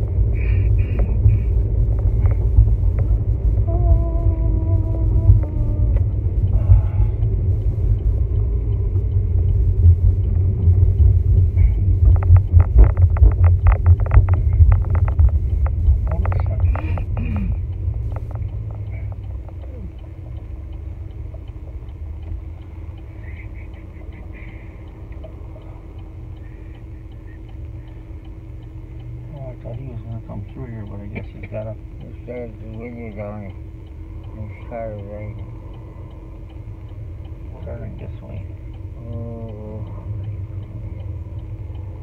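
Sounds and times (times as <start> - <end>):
idling car hum: 0.0 - 42.0
tyre and road rumble in car: 0.0 - 42.0.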